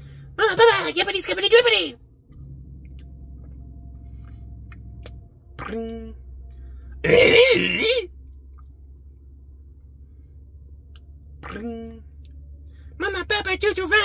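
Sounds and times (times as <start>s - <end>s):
low steady hum: 0.0s - 14.0s
man's wavering exclamation: 7.1s - 8.1s
man humming: 11.4s - 12.0s.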